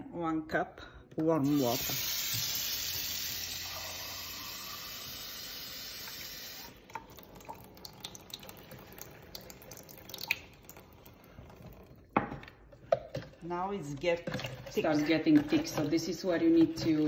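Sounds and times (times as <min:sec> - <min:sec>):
faucet running into a mug: 0:01.4 - 0:11.5.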